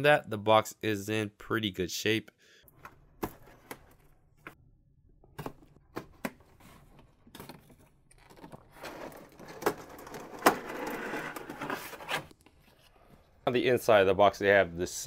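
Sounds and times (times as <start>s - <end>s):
cardboard sliding and scraping: 8.8s - 13.3s.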